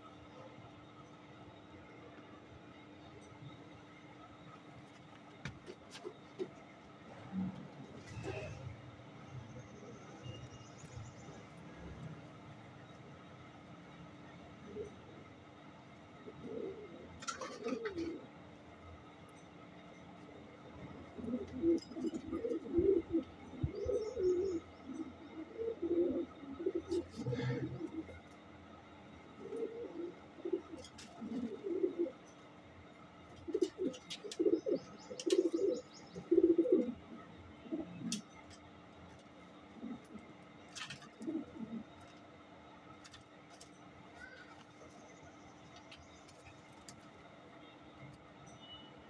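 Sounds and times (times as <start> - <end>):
pigeons cooing: 8.0 - 8.8, 14.6 - 15.2, 16.2 - 18.4, 20.8 - 28.4, 29.2 - 32.3, 33.4 - 38.3, 39.7 - 42.1.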